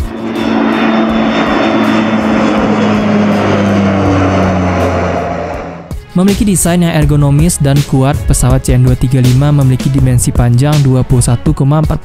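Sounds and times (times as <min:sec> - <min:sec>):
turboprop aircraft flying past: 0:00.0 - 0:06.2.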